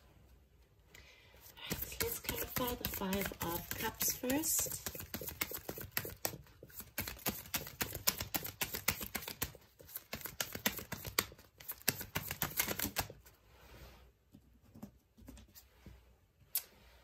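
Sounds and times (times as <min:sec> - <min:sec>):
cards being shuffled: 0:01.5 - 0:13.2.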